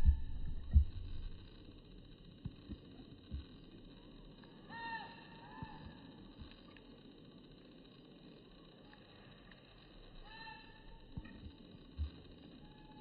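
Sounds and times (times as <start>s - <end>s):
low thumps: 0.0s - 1.4s.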